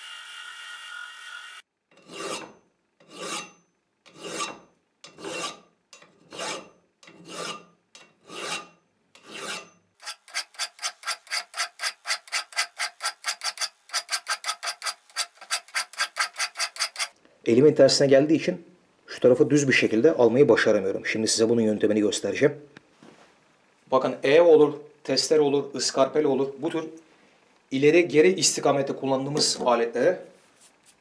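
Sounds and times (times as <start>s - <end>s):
hand file rasping on steel: 2.0s - 17.2s.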